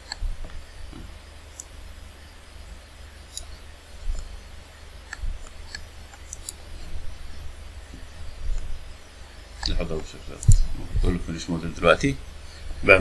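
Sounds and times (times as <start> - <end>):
steady low hum: 0.0 - 13.0
computer mouse clicks: 3.3 - 4.3, 5.1 - 6.7, 9.6 - 10.7.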